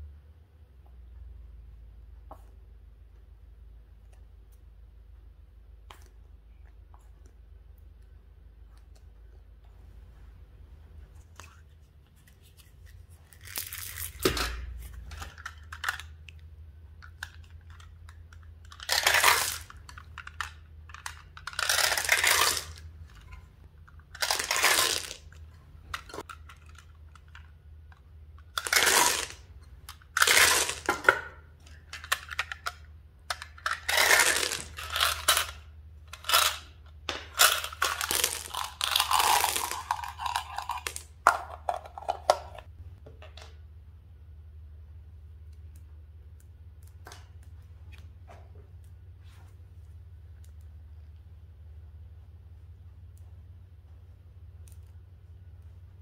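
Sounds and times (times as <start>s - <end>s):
candies rattling out of plastic containers: 33.4s - 35.6s, 37.3s - 42.6s.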